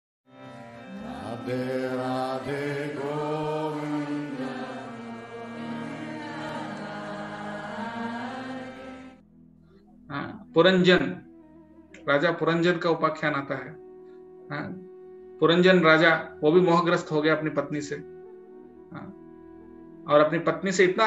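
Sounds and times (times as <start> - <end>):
steady drone: 0.6 - 9.2
chanted devotional mantra: 0.9 - 9.2.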